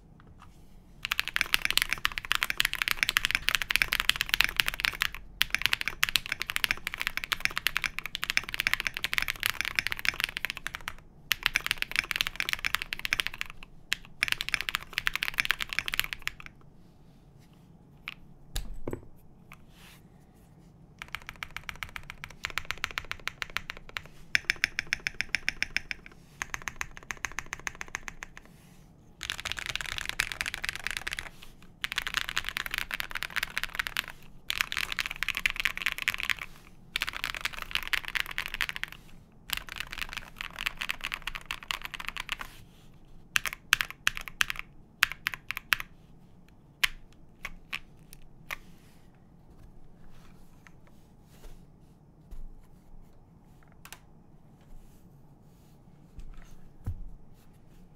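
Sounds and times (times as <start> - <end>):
mechanical keyboard typing: 1.0 - 16.6, 21.0 - 28.5, 29.2 - 42.5, 43.4 - 45.9, 46.8 - 48.6.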